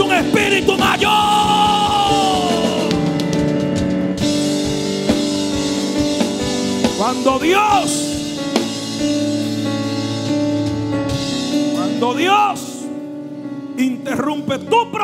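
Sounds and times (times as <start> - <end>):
person shouting: 0.0 - 3.0
drum kit hits: 0.0 - 12.3
keyboard chords: 0.0 - 15.0.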